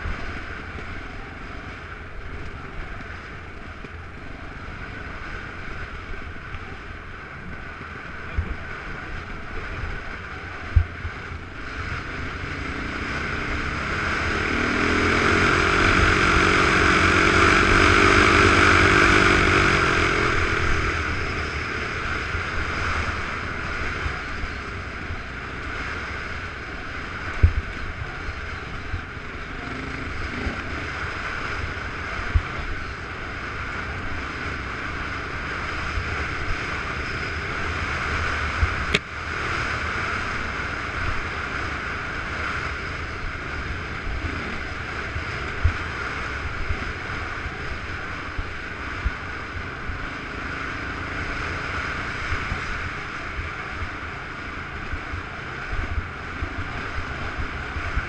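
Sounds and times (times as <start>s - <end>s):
rumble on rough dirt trail: 0.0s - 58.0s
wind rush over microphone: 0.0s - 58.0s.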